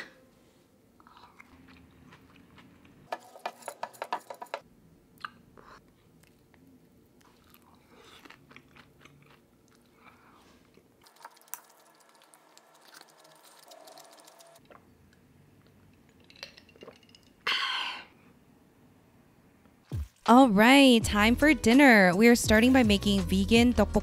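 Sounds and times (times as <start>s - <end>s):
chewing and crunching: 1.0s - 3.1s, 5.2s - 14.8s.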